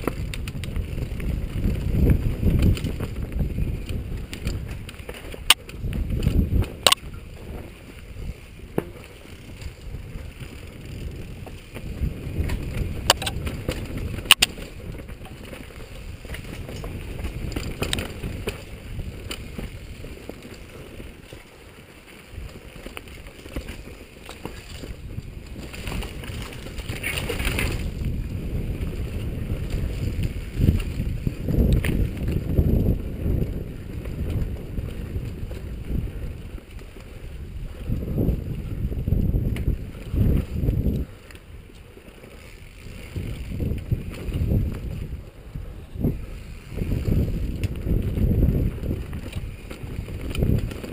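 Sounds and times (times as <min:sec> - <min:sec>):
mountain bike rattling on dirt trail: 0:00.0 - 0:50.9
wind buffeting microphone: 0:00.0 - 0:50.9
bike knocking over bumps: 0:08.6 - 0:09.8.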